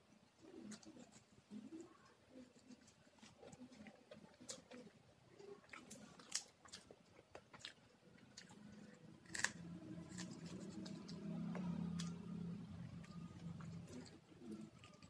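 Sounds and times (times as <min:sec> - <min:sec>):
chewing: 0:00.4 - 0:15.0.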